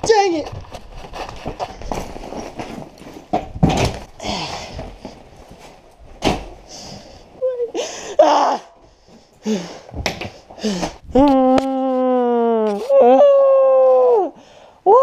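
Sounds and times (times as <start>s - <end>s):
household things thumping and banging: 0.0s - 7.1s
rustling: 0.0s - 7.6s.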